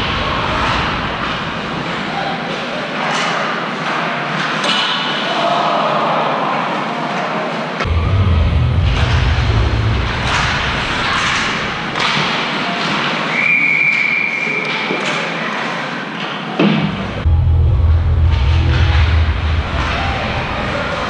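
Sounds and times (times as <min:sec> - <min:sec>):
puck and sticks knocking boards: 0:10.2 - 0:13.2.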